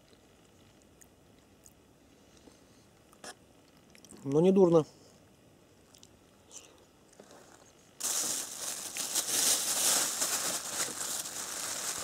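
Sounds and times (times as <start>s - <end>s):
plastic bag crinkling: 8.0s - 12.0s.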